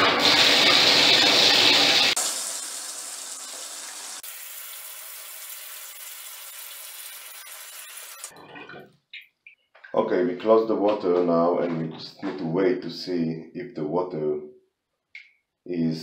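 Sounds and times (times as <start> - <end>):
water pouring into bathtub: 0.0 - 8.4.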